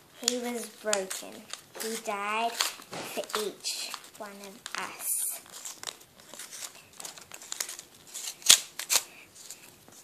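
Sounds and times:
paper tearing and rustling: 0.2s - 10.0s.

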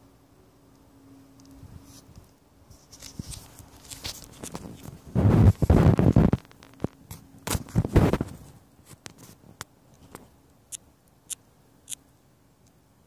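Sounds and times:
rustling and scraping against bark: 1.7s - 10.3s.

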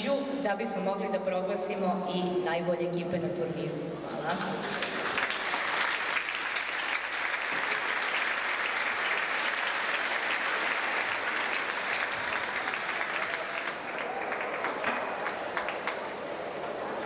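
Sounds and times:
audience applauding: 4.3s - 17.0s.

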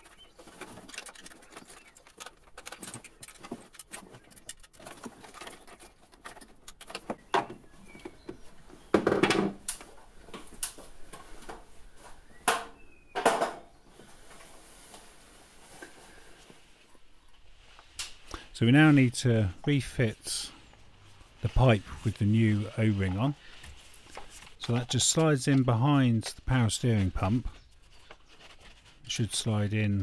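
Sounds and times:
hand tools clicking and tapping: 0.0s - 8.4s.

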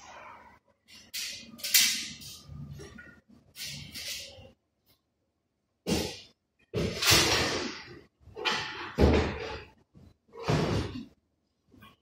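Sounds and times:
hard objects clunking and rattling: 5.9s - 11.2s.

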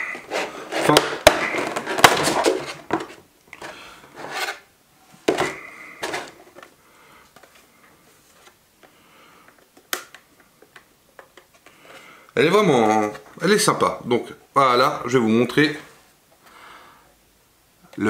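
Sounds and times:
plastic packaging rustling: 0.0s - 4.6s.

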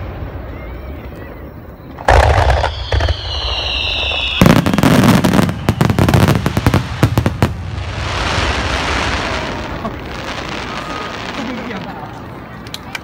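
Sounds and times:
firework whistle: 0.4s - 6.8s, 8.2s - 11.4s
firework burst: 1.9s - 12.1s.

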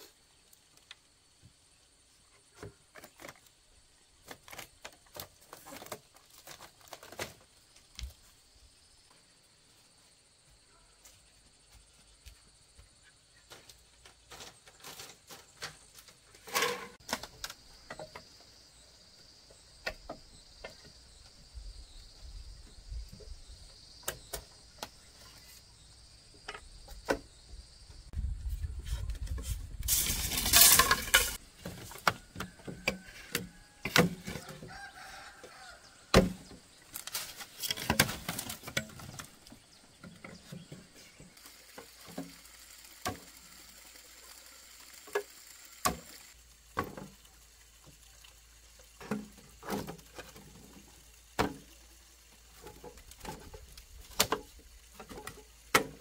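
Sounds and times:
noisy scraping: 16.3s - 17.1s
knocks and clatter of handling: 29.3s - 34.6s, 36.1s - 40.9s.

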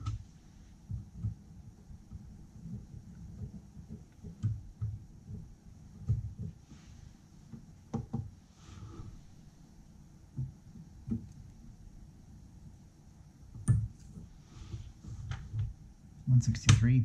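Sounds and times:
small clicks and knocks: 0.0s - 6.8s, 10.3s - 11.6s, 13.5s - 15.8s.

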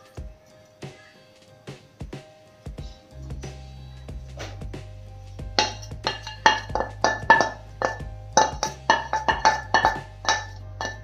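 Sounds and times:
metal spoon clinking and scraping pan: 5.6s - 11.0s.

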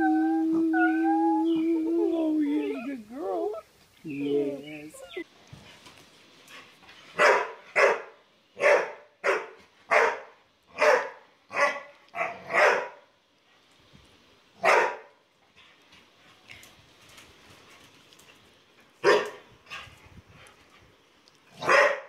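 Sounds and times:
dog barking: 7.2s - 13.1s, 14.6s - 15.2s, 19.0s - 19.4s, 21.6s - 22.0s.

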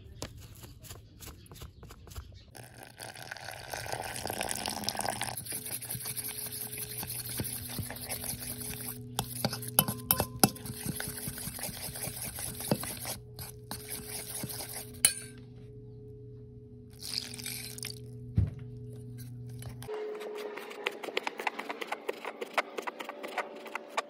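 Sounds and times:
steady low hum: 4.2s - 23.8s
fork clinking against metal bowl: 9.2s - 11.1s, 15.0s - 15.4s.

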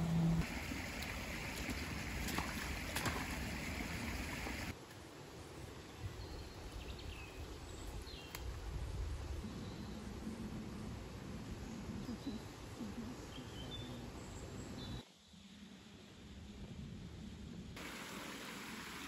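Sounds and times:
stream babbling over stones: 0.0s - 4.8s.

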